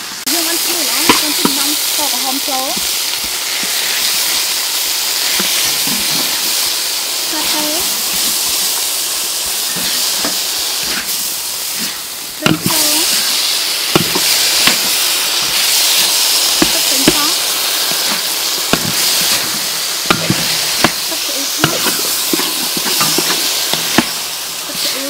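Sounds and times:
food sizzling in a wok: 0.0 - 25.0
metal spatula scraping a pan: 9.4 - 25.0.

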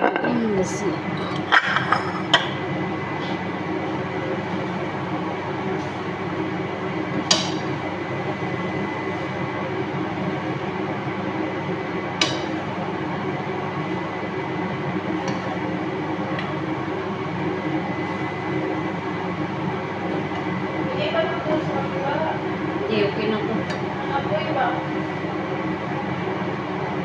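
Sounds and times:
steady background noise: 0.0 - 25.4.

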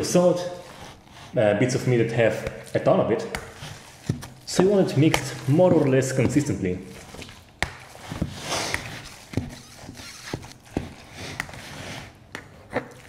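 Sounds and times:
wet squishing of ground beef: 2.2 - 11.6.

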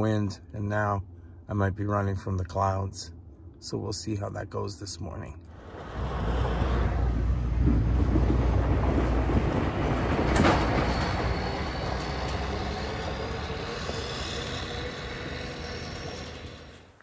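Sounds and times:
motor grader driving past: 5.5 - 17.0.

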